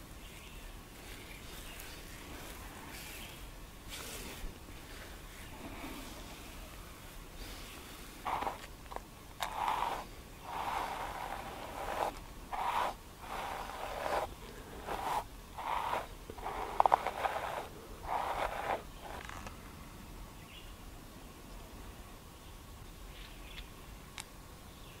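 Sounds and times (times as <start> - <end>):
hairbrush brushing a beard: 8.3 - 8.7, 9.4 - 19.3.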